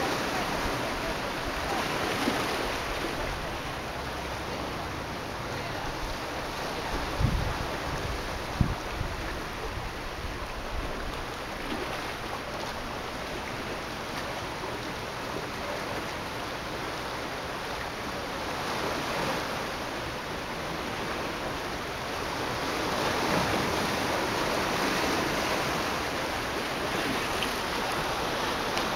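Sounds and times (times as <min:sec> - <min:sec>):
waves washing against rocks: 0:00.0 - 0:28.9
wind bump on microphone: 0:06.9 - 0:11.2.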